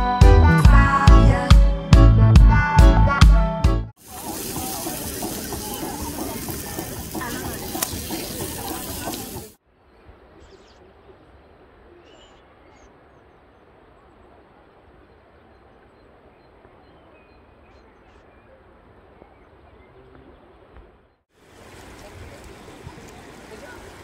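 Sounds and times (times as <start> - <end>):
background music: 0.0 - 3.9
river water rushing: 4.0 - 9.6, 21.4 - 24.0
voices: 4.0 - 13.1, 21.6 - 24.0
faint bird chirps: 9.8 - 14.2.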